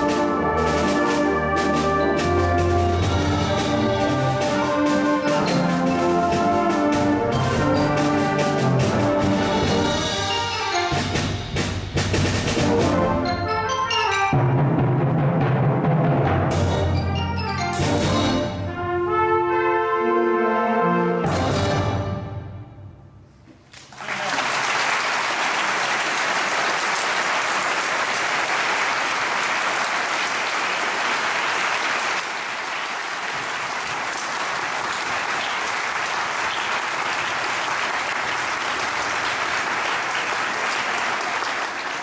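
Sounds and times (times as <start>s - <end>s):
concert band playing: 0.0s - 19.5s, 20.8s - 22.9s
audience applause: 23.8s - 42.0s.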